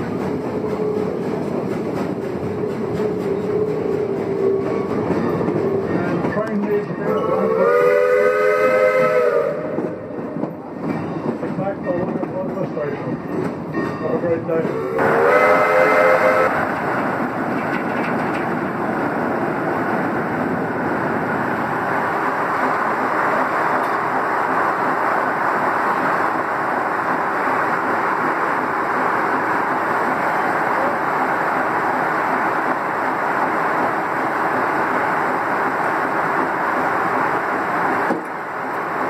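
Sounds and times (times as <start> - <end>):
steam train whistle: 7.1 - 10.0, 14.9 - 16.6.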